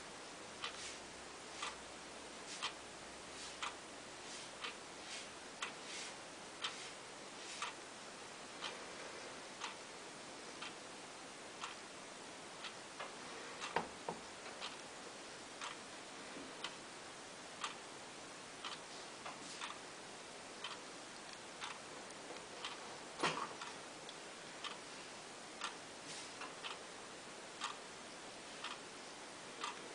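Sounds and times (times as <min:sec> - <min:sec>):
light regular ticks: 0:01.6 - 0:01.8, 0:02.5 - 0:02.8, 0:03.4 - 0:03.8, 0:04.4 - 0:04.8, 0:06.6 - 0:07.0, 0:07.6 - 0:07.8, 0:09.6 - 0:09.8, 0:11.6 - 0:11.8, 0:15.6 - 0:15.8, 0:17.6 - 0:17.8, 0:18.6 - 0:19.8, 0:20.6 - 0:22.8, 0:25.6 - 0:26.8, 0:27.6 - 0:27.8, 0:28.6 - 0:28.8, 0:29.6 - 0:29.9.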